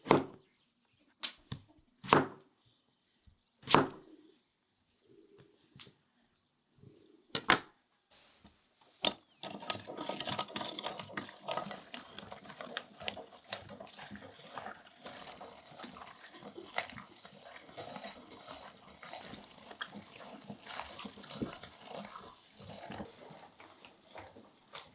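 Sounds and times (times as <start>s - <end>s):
meat grinder squelching and crackling: 9.3s - 24.9s.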